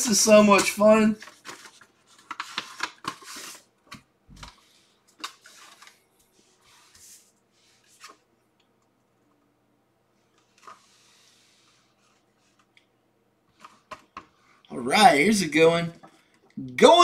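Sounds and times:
paper envelope rustling: 0.3 - 8.3, 10.2 - 12.7.

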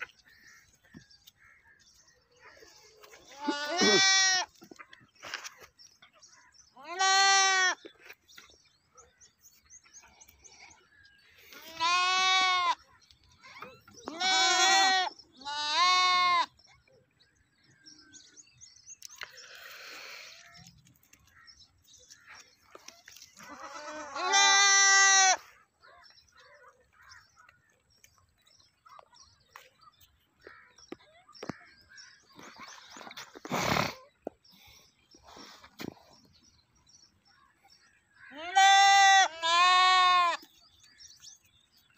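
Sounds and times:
goat bleating: 3.1 - 4.6, 6.8 - 7.8, 11.5 - 12.8, 14.0 - 16.6, 23.4 - 25.5, 38.3 - 40.5.

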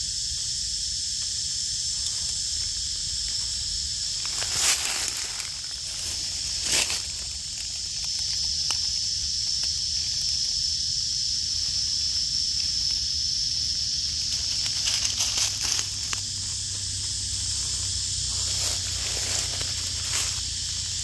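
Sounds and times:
high-pitched insect drone: 0.0 - 21.0
rustling of dry leaves: 0.2 - 21.0.

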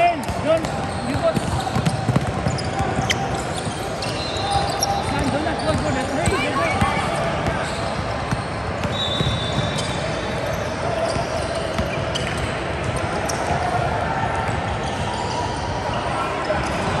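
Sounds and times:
large gym noise: 0.0 - 17.0
shoe squeak: 0.2 - 13.6, 14.8 - 17.0
basketball bouncing on hardwood: 0.6 - 2.9.

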